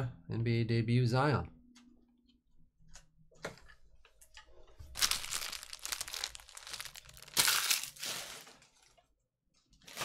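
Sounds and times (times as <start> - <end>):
foil wrapper crinkling: 4.9 - 8.9.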